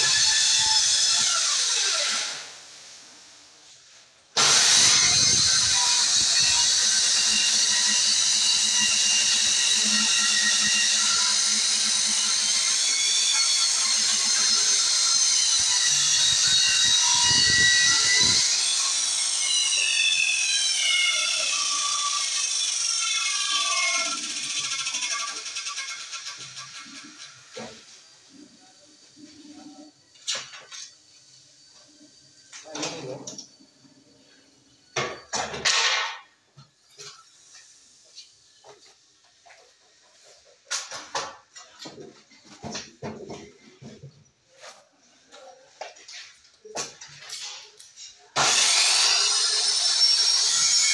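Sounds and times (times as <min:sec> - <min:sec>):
circular saw cutting wood: 0:00.0 - 0:02.7, 0:04.4 - 0:29.9, 0:48.4 - 0:50.9.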